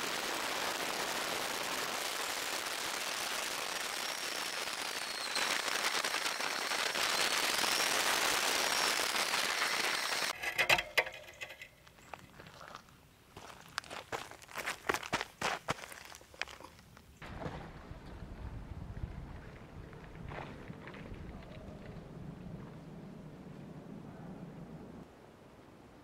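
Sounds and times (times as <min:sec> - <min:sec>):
scooter wheels rolling: 0:04.0 - 0:12.4.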